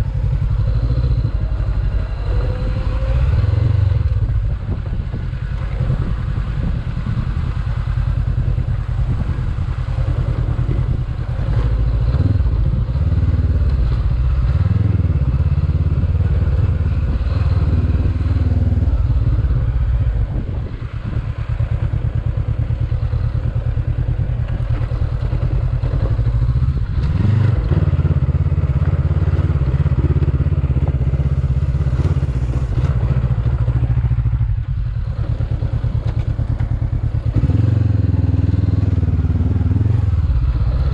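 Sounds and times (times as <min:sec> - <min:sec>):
motorcycle engine revving: 0:00.0 - 0:40.9.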